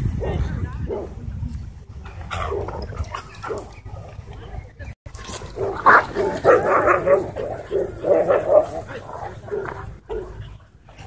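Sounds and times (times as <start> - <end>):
dogs barking and yipping: 2.0 - 4.3, 5.1 - 11.0.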